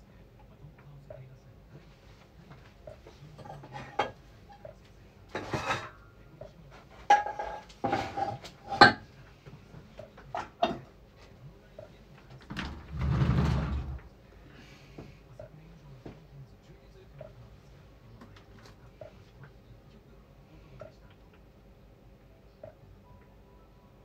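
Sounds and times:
pots and pans clattering: 3.3 - 4.6, 5.3 - 6.0, 6.7 - 9.1, 10.2 - 10.9, 12.5 - 14.0.

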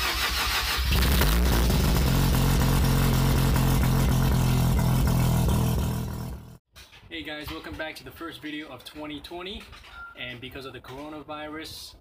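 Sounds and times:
engine cranking: 0.0 - 2.4.

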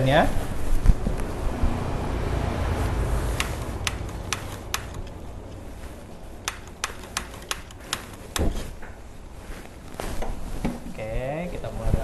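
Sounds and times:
low rumble: 0.4 - 4.4.

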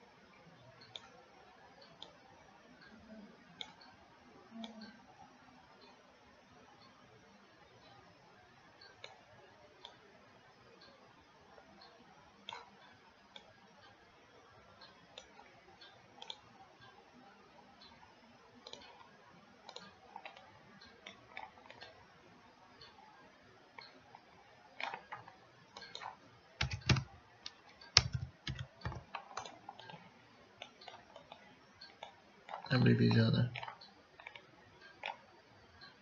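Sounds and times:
mouse and keyboard clicks: 24.8 - 30.0.

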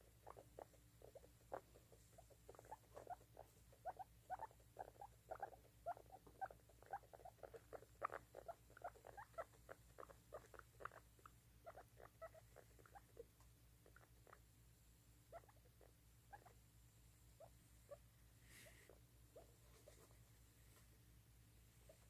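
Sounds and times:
guinea pig squeaking: 0.0 - 14.6, 15.2 - 16.6, 17.4 - 20.2.

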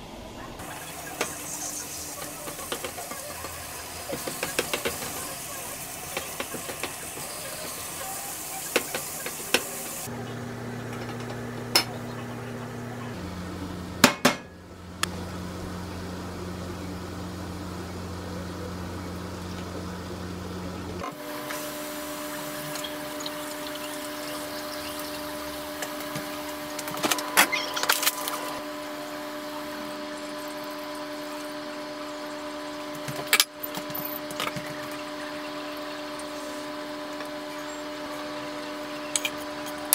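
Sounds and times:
steady hum: 0.0 - 39.9.

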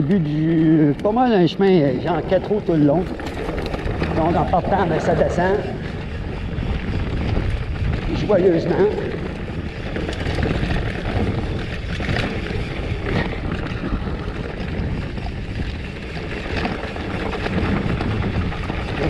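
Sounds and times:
bike tyres rumbling over dirt: 0.0 - 19.0
wind buffeting microphone: 0.0 - 19.0.

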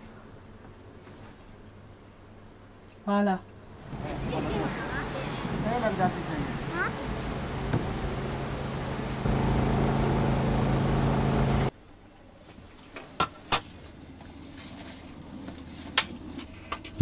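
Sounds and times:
engine hum: 3.8 - 11.7.

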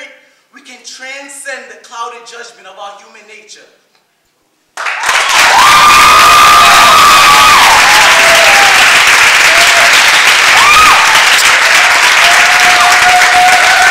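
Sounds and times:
audience applauding: 4.8 - 13.9
crowd whooping: 5.2 - 13.9.

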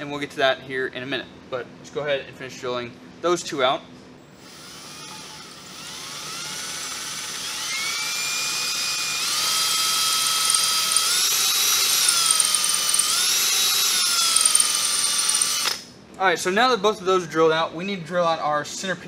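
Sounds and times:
cordless drill whining: 4.3 - 15.8.

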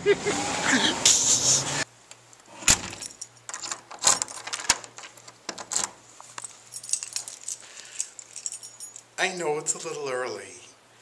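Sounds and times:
door lock clicking and rattling: 2.7 - 6.0
keys jangling: 2.9 - 9.2.

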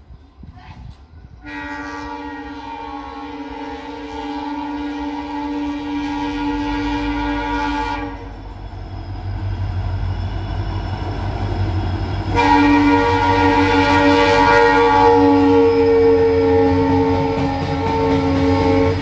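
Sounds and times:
locomotive engine rumble: 0.0 - 19.0
locomotive air horn chord: 1.4 - 8.4, 12.3 - 19.0.

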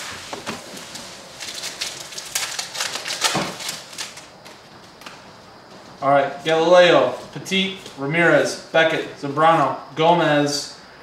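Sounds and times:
foil wrapper tearing and crinkling: 0.0 - 4.4
cards rustling: 0.0 - 5.2.

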